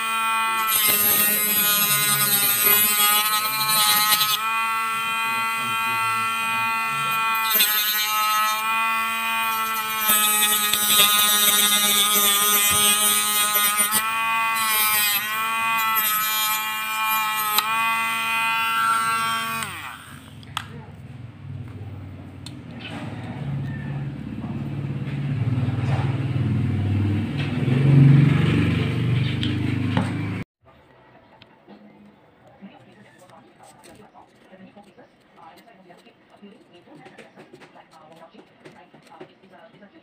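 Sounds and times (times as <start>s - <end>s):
rotary tool motor whine: 0.0s - 20.4s.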